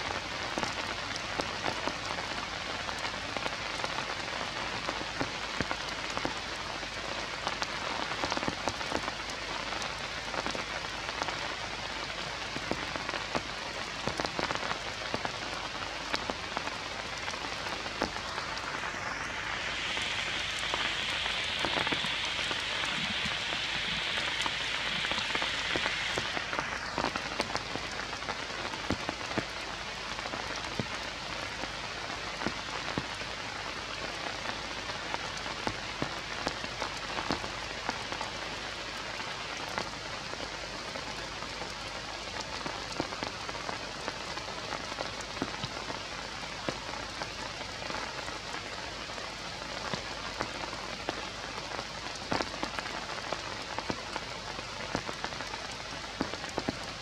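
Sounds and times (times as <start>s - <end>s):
rain falling on leaves: 0.0s - 57.0s
bright high hiss: 16.6s - 28.2s.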